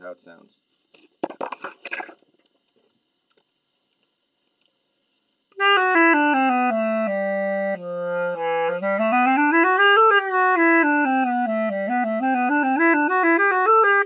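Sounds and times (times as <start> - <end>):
clarinet descending notes: 5.6 - 14.0.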